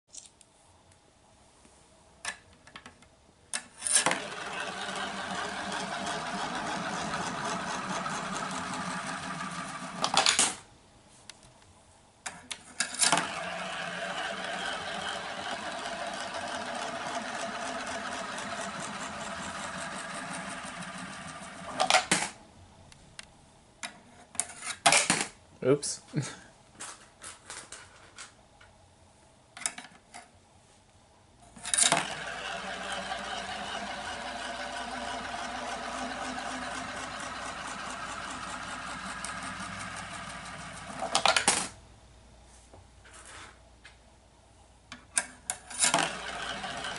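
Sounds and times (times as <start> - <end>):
coin whirring rattle in funnel: 3.7 - 10.6, 12.8 - 22.3, 31.6 - 41.7, 45.6 - 46.9.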